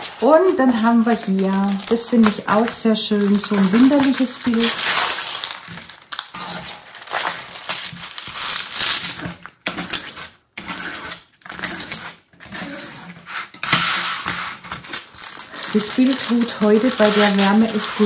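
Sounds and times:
plastic film rustling and crinkling: 0.0s - 18.0s.

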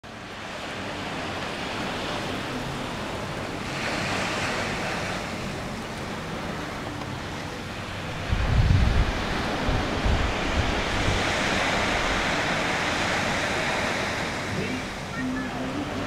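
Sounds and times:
surf washing onto beach: 0.1s - 16.0s
wind buffeting microphone: 7.9s - 15.1s.

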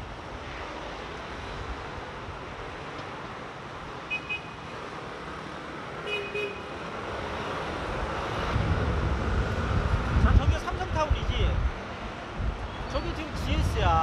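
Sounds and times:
city street traffic: 0.0s - 14.0s
wind buffeting microphone: 7.9s - 14.0s.

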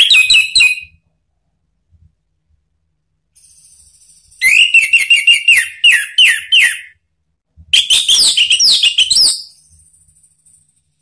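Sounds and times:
thrush singing whistled notes: 3.4s - 7.0s, 7.8s - 10.3s.

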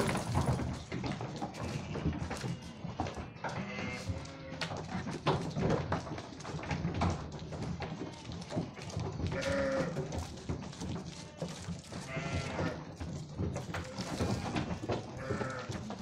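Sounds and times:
sheep bleating: 1.6s - 4.6s, 8.1s - 10.1s, 11.2s - 12.8s, 13.8s - 16.0s.

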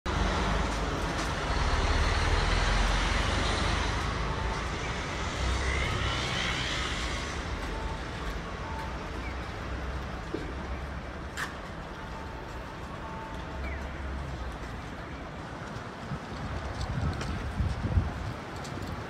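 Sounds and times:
street noise: 0.0s - 19.0s
distant traffic rumble: 0.1s - 19.0s.

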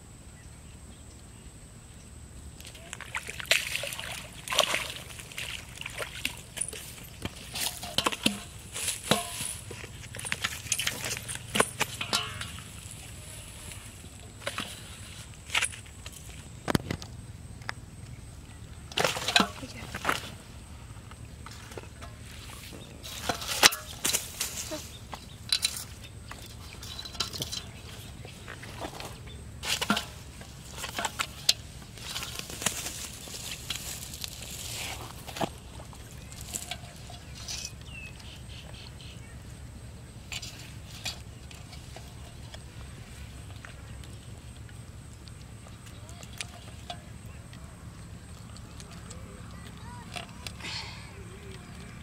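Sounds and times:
fish flopping on grass and leaves: 2.7s - 17.0s, 18.9s - 38.3s.

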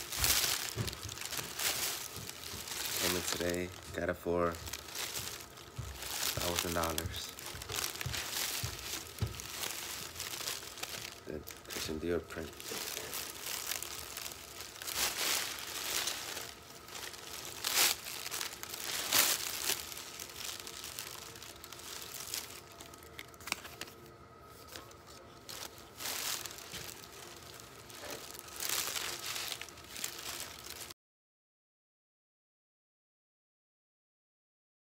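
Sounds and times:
sweater rustling and crinkling: 0.0s - 31.0s.

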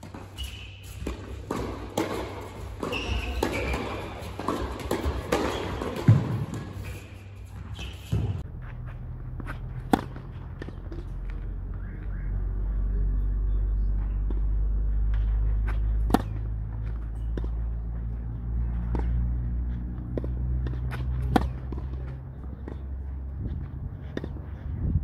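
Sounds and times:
steady low rumble: 8.3s - 25.0s.

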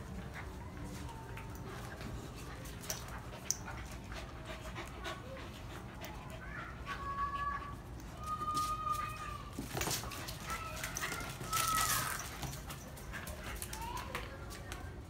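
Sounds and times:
dog panting: 0.0s - 7.9s, 12.2s - 14.0s
dogs play-fighting: 0.0s - 15.0s
claws clicking on concrete: 8.0s - 14.9s.

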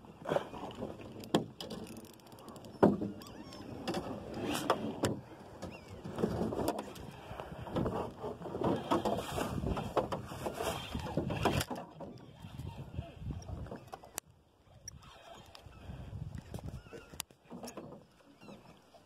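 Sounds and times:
fishing reel being cranked: 14.8s - 15.9s.

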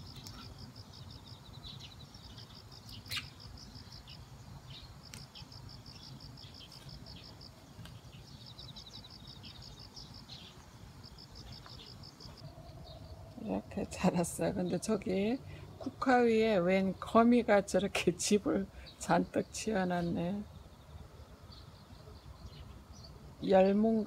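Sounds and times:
sharp insect chirp: 0.0s - 13.4s
insects chirping in pulsed trills: 0.0s - 18.5s.

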